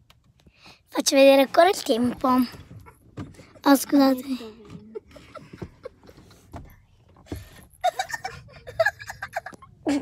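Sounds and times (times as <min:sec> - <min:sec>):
girl's high-pitched voice: 0:01.0 - 0:02.6, 0:03.6 - 0:04.8.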